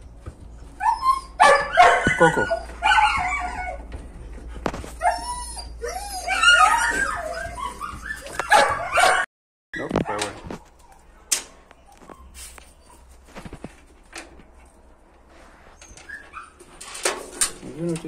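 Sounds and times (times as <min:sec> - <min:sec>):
dog whining and yipping: 0:00.7 - 0:03.9, 0:04.7 - 0:11.2, 0:15.8 - 0:16.8.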